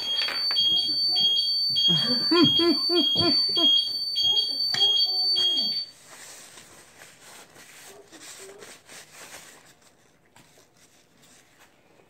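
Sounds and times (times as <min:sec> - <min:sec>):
electronic alarm beeping: 0:00.0 - 0:05.9.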